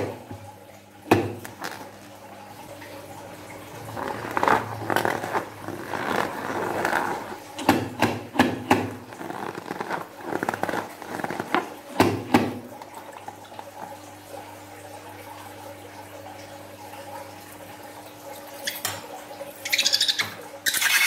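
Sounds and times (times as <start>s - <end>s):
rubber balloon squeaking: 3.9s - 7.4s, 8.8s - 11.7s.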